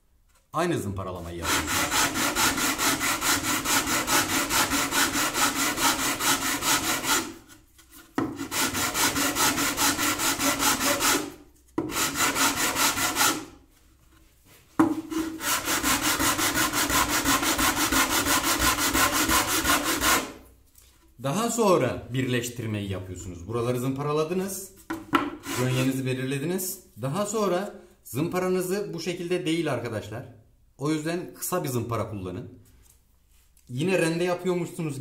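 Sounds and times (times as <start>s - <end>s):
sanding block rubbing on wood: 1.4s - 13.5s, 15.0s - 20.4s, 25.4s - 26.0s.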